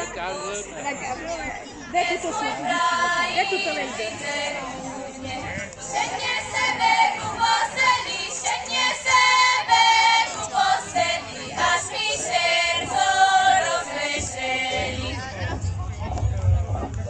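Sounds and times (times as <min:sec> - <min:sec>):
women singing folk song: 0:01.9 - 0:15.2.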